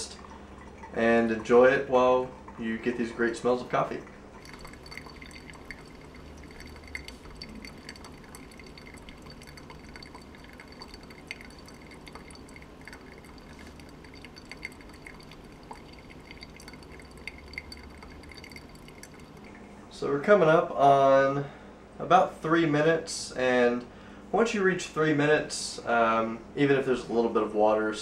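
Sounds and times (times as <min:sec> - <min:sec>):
coffee dripping into carafe: 0:00.0 - 0:19.7
faint steady hum: 0:00.0 - 0:28.0.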